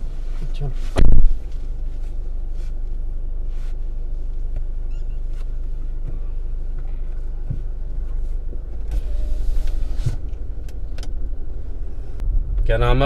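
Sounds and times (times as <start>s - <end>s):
faint rustles in seat: 0.0s - 10.5s
car engine idling: 0.0s - 13.0s.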